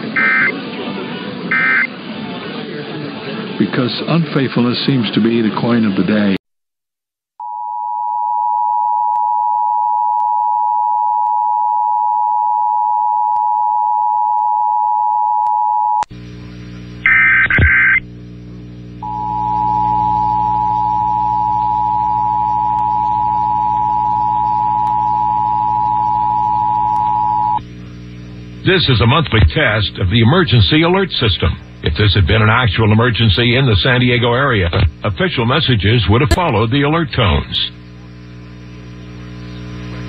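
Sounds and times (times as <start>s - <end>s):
emergency alert attention tone: 0.1s - 0.5s, 1.5s - 1.9s, 36.3s - 36.6s.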